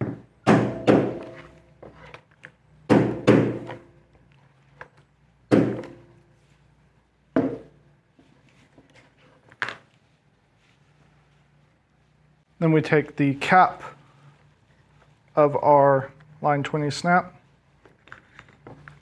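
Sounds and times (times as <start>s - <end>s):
mallet striking a hole punch: 0.0s - 1.5s, 2.9s - 3.8s.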